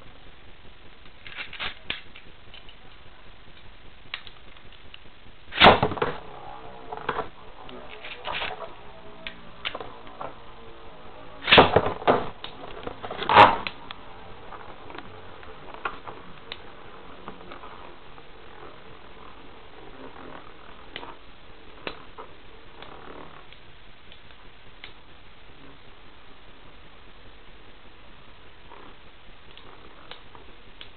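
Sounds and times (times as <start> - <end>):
faint steady background noise: 0.0 - 30.9.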